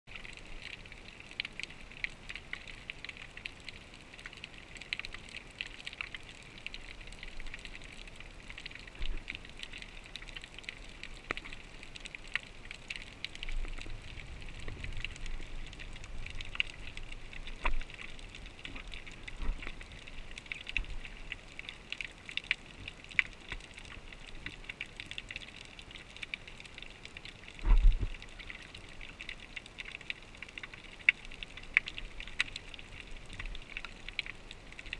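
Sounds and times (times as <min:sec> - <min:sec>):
underwater crackle of clicks: 0:00.1 - 0:34.9.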